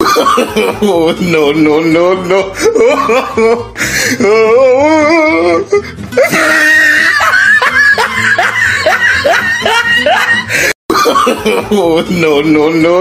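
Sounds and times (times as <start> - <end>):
music: 0.0 - 13.0
woman laughing loudly: 2.6 - 3.7, 6.2 - 11.8.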